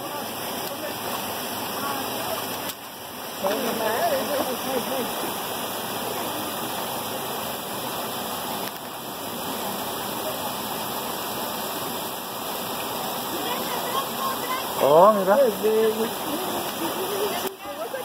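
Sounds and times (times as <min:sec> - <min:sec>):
creek running over stones: 0:00.0 - 0:18.0.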